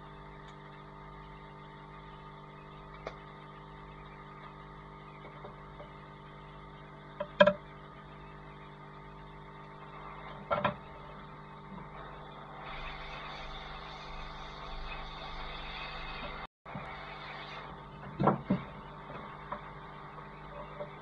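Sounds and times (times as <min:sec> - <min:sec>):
hiss of blown air: 0:12.0 - 0:18.1.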